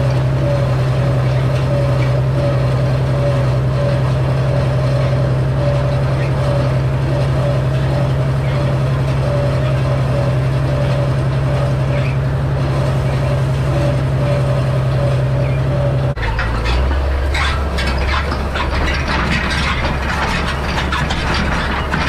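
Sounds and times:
tractor diesel engine running: 0.0s - 22.0s
rake tines rattling: 16.1s - 22.0s.

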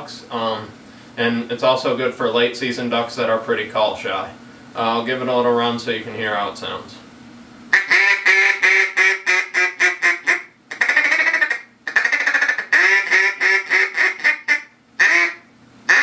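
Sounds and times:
duck call quacks: 7.7s - 16.0s.

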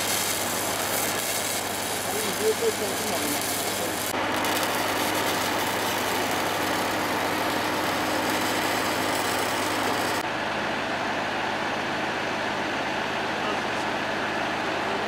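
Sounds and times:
arc welding crackling hiss: 0.0s - 10.2s
engine running: 0.0s - 15.0s.

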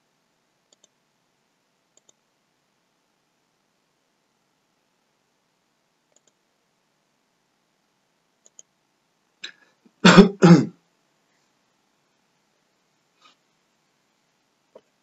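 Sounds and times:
faint computer mouse clicks: 0.7s - 1.0s, 1.9s - 2.2s, 6.1s - 6.4s, 8.4s - 8.7s
person coughing loudly: 10.0s - 10.8s.

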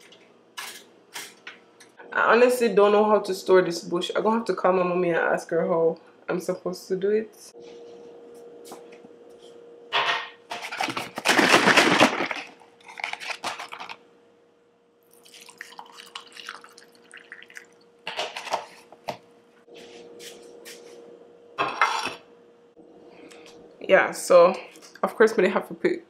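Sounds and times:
clatter of items on countertop: 0.0s - 2.0s, 9.9s - 14.0s, 18.0s - 19.2s, 21.6s - 22.2s
juice pouring into glass: 15.0s - 17.9s.

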